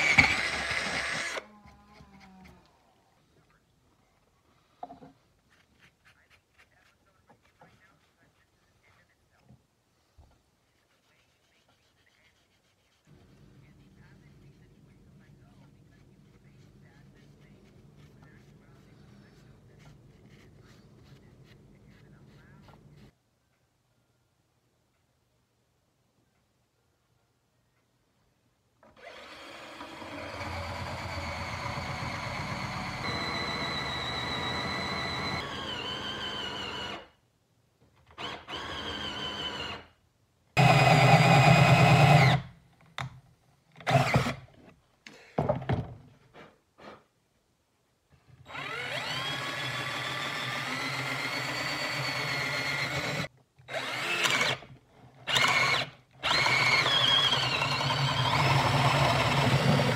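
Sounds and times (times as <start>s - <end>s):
cordless drill boring into wood: 0.0s - 1.5s, 28.8s - 37.1s, 38.2s - 39.8s, 40.6s - 42.5s, 43.8s - 44.4s, 48.5s - 59.9s.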